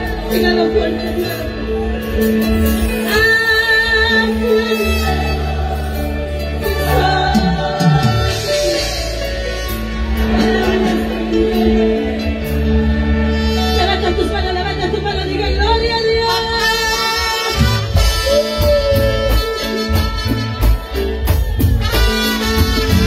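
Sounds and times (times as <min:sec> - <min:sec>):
woman singing into a microphone: 0:00.0 - 0:02.2, 0:02.8 - 0:09.3, 0:10.2 - 0:17.2
electric bass: 0:00.0 - 0:23.0
keyboard: 0:00.0 - 0:23.0.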